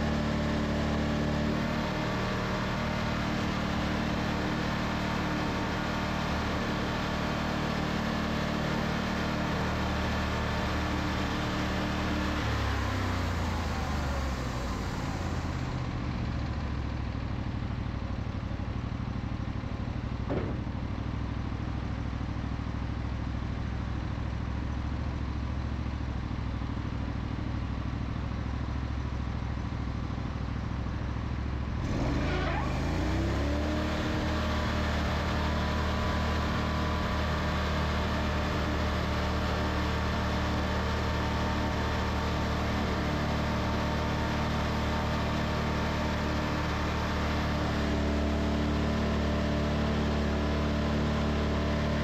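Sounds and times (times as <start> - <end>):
single knock: 20.3 - 20.8.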